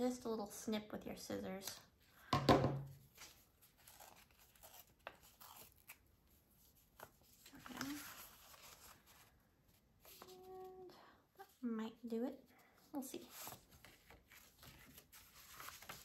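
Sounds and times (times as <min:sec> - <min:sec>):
paper rustling: 0:03.0 - 0:10.7, 0:13.0 - 0:16.0
paper tearing: 0:03.2 - 0:06.1, 0:13.3 - 0:16.0.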